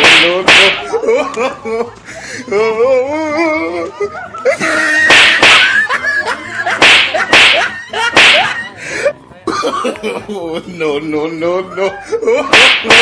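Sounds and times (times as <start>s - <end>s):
sharp slapping whacks: 0.0s - 0.9s, 5.0s - 5.8s, 6.7s - 8.6s, 12.5s - 13.0s.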